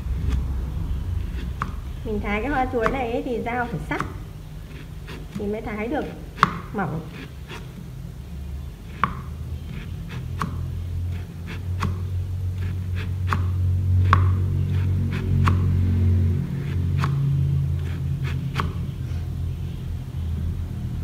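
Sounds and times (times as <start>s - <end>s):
steady low hum: 0.0s - 21.0s
knife tapping on chopping board: 6.4s - 6.7s, 9.0s - 9.3s.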